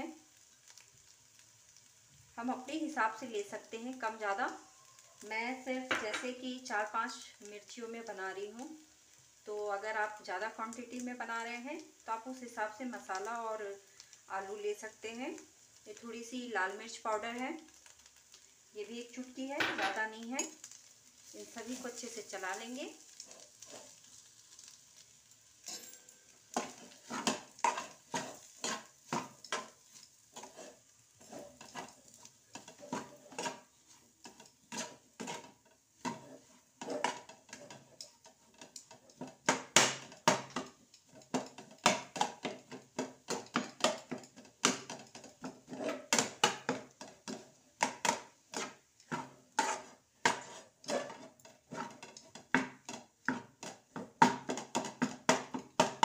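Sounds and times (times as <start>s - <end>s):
spatula scraping frying pan: 19.8s - 56.0s.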